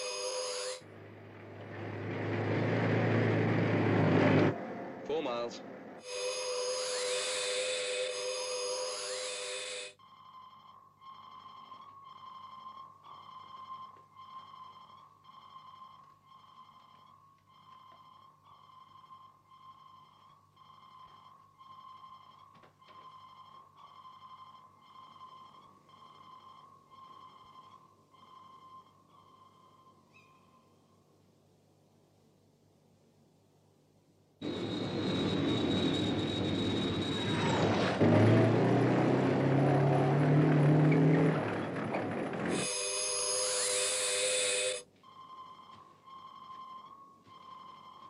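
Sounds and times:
shrill multi-tone electronic sound: 0.0 - 0.9, 6.0 - 31.1, 34.4 - 38.0, 42.5 - 48.0
pulsing high electronic tone: 42.5 - 48.0.

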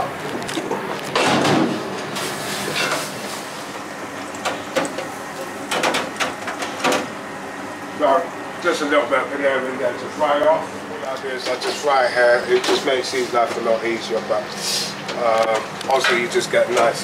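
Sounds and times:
metal kitchen clatter: 2.7 - 3.1, 5.7 - 7.1.

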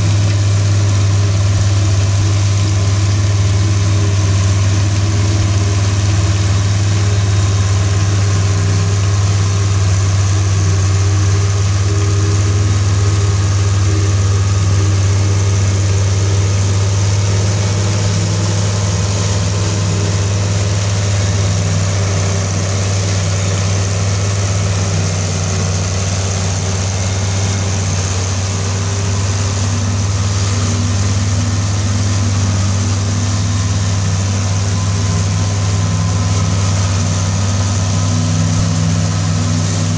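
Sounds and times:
forage harvester chopping corn: 0.0 - 39.9
tractor engine under load: 0.0 - 39.9.

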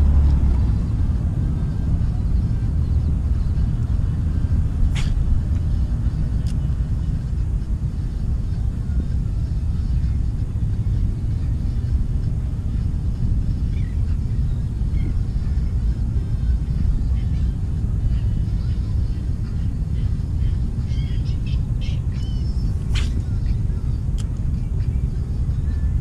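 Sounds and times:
wind buffeting microphone: 20.2 - 26.0.

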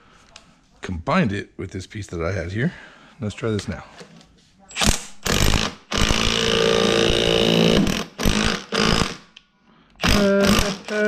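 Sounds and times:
power tool running in bursts: 5.3 - 9.1.

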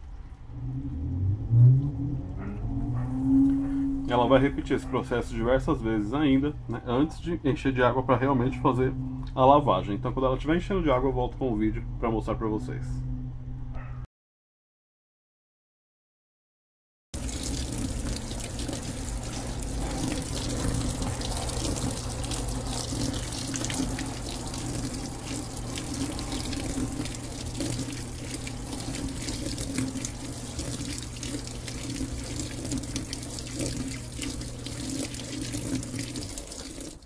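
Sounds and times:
low steady hum: 17.2 - 37.0
water pouring into washer drum: 17.2 - 37.0.

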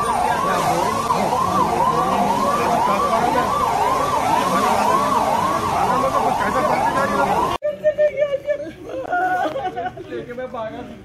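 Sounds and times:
emergency vehicle siren: 0.0 - 7.6.

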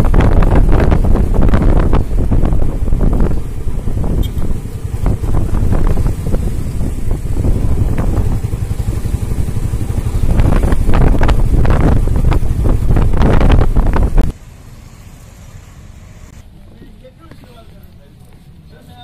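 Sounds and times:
wind buffeting microphone: 0.0 - 14.4.

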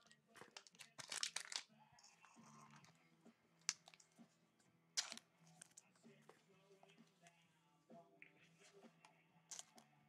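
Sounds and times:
card wrapper crinkling: 0.4 - 1.6.

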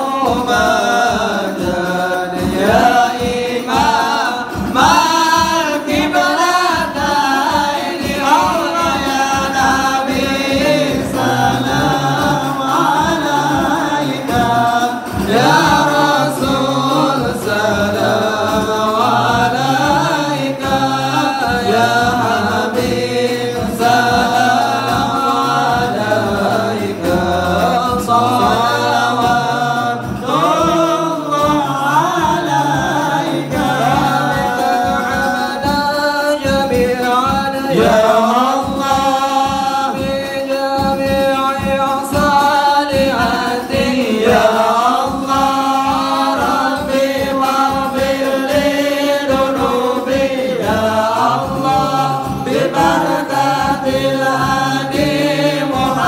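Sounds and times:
men singing in unison: 0.0 - 56.0.

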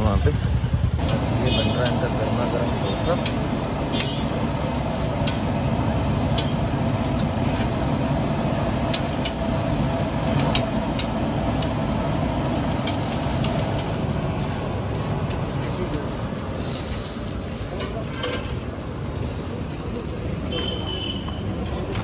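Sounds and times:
steady low rumble: 0.0 - 17.8
metal spatula scraping griddle: 16.5 - 18.7.

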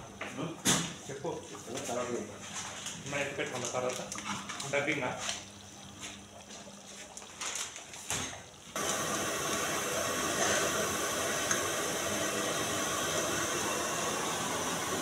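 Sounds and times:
gas burner hissing: 8.7 - 15.0.

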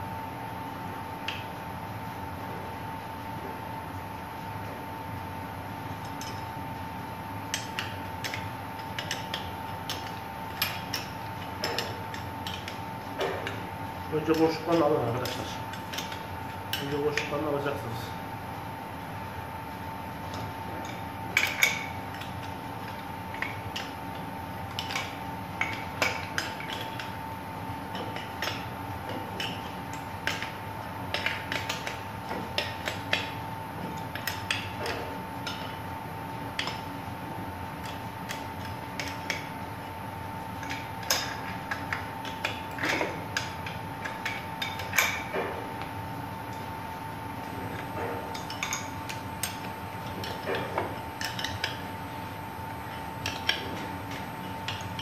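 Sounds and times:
steady high hum: 0.0 - 55.0
wrench and nuts clinking: 47.7 - 51.8.

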